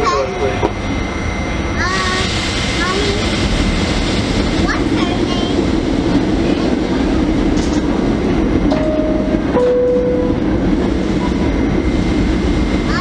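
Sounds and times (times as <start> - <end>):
subway car low rumble: 0.0 - 13.0
two-note falling door chime: 8.8 - 10.4.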